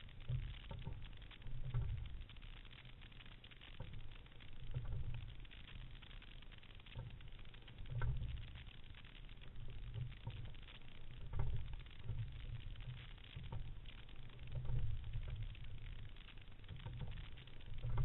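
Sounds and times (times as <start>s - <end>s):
water and wind noise: 0.0s - 2.4s, 7.0s - 18.0s.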